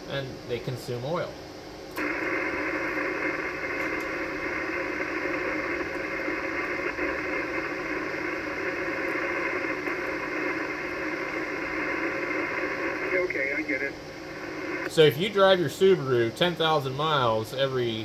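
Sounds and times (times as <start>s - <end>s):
radio static hiss: 0.0s - 18.0s.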